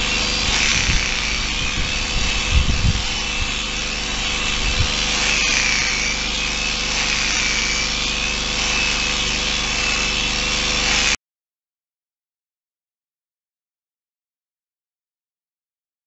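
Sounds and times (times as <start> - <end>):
electric shears whining: 0.0 - 11.2.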